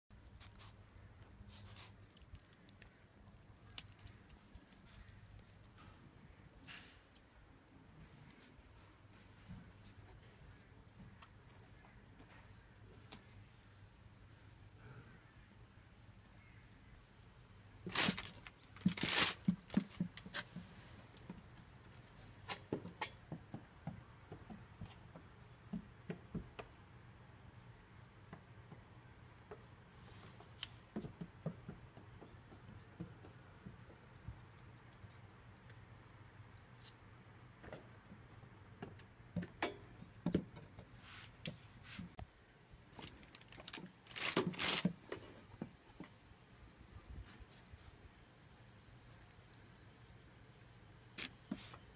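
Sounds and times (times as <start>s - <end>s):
scraping rustle: 17.8s - 20.5s, 43.0s - 45.5s
goat hooves tapping on wooden floor: 18.9s - 26.8s, 28.2s - 34.4s
goat hooves tapping: 28.5s - 34.3s.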